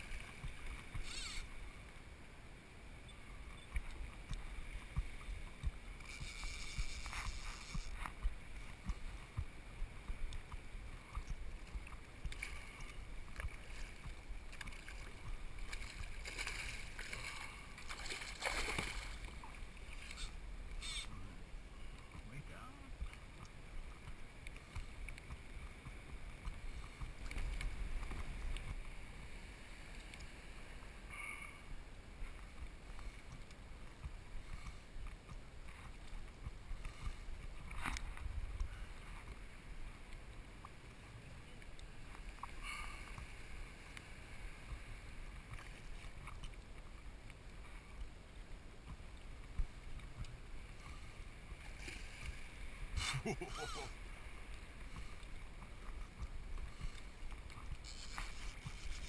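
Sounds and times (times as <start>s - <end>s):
water lapping against kayak hull: 0.0s - 59.0s
wind rumbling on microphone: 31.8s - 42.3s.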